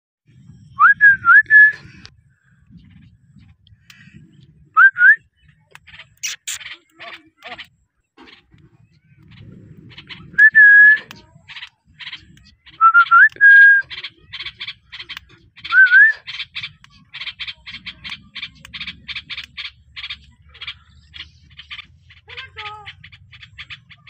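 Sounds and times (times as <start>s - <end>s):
parakeet chirping: 5.9s - 7.7s, 8.3s - 24.0s.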